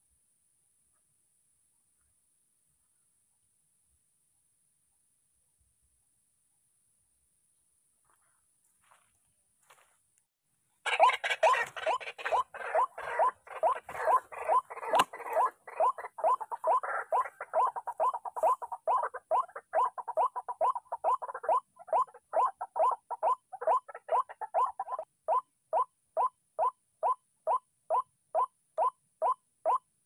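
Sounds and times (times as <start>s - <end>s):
waterhen calling: 10.8s - 25.0s.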